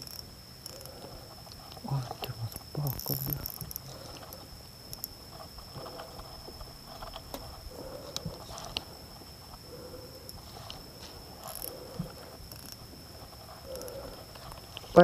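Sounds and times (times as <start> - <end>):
steady high-pitched tone: 0.0 - 15.0
fishing reel being cranked: 2.6 - 5.1.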